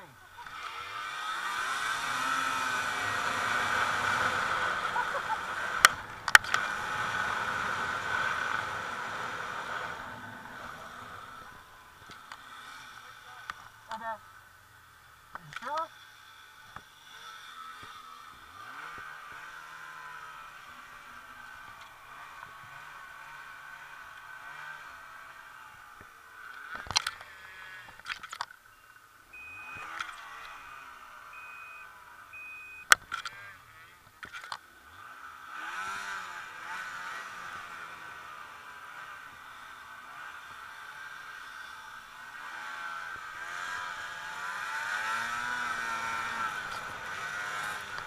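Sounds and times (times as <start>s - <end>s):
snowmobile engine and track hum: 0.0s - 48.0s
sharp clicks: 5.7s - 6.7s
short high beeps: 28.7s - 29.8s, 31.3s - 32.9s.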